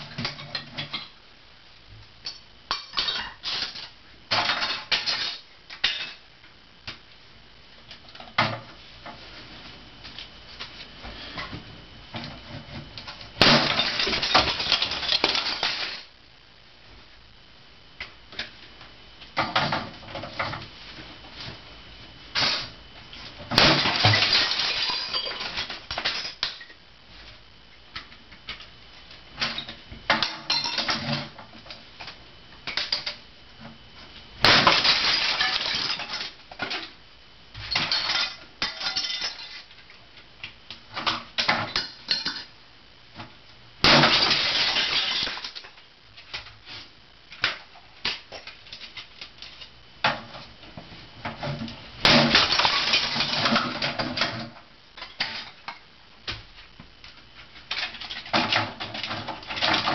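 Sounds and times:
hammer smashing plastic discs: 0:02.7 - 0:06.2, 0:13.4 - 0:16.1, 0:23.5 - 0:26.7, 0:34.4 - 0:36.9, 0:43.8 - 0:45.8, 0:52.0 - 0:55.6, 0:57.7 - 0:59.9.

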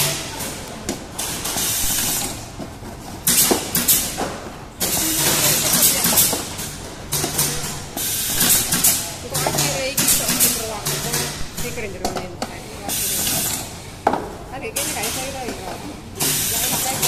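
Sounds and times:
compressed air hiss bursts: 0:01.6 - 0:02.4.

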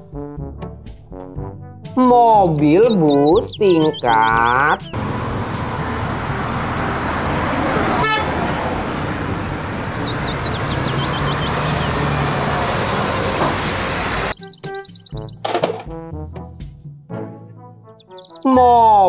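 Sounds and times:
road noise: 0:02.5 - 0:15.9
bus engine running: 0:03.0 - 0:15.8
high chirps: 0:09.2 - 0:12.3, 0:13.7 - 0:15.4, 0:17.9 - 0:18.6.

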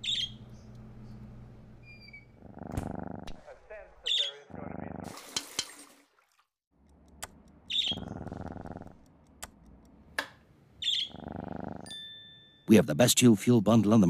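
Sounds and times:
cat purring: 0:02.3 - 0:03.4, 0:07.9 - 0:09.0, 0:11.1 - 0:11.9
sharp clicks: 0:06.8 - 0:10.4.

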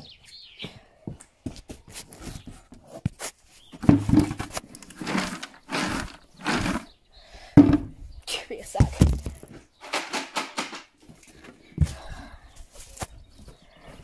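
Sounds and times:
scraping rustling bursts: 0:03.2 - 0:07.0
feed bowl clicking and rustling: 0:03.8 - 0:06.8.

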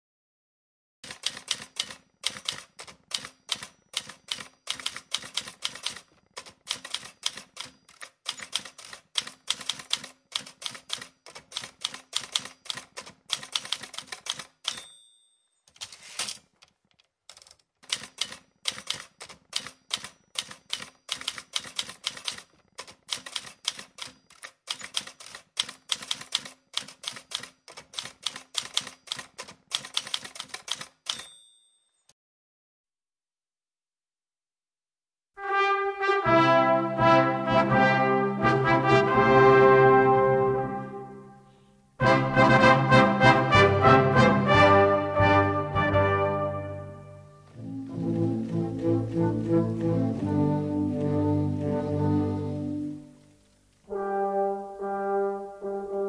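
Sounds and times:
typewriter keys clacking: 0:01.0 - 0:32.1
typewriter bell ding: 0:03.2 - 0:05.6, 0:14.6 - 0:15.7, 0:19.6 - 0:21.7, 0:31.1 - 0:32.2.

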